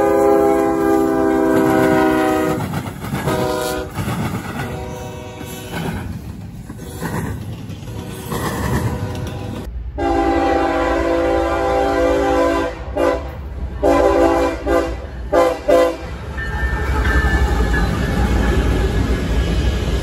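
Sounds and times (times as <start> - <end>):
locomotive air horn: 0.0 - 4.0, 4.6 - 5.9, 7.9 - 16.2
freight cars rolling on rails: 0.0 - 9.9, 13.2 - 20.0
train rumble: 0.0 - 20.0.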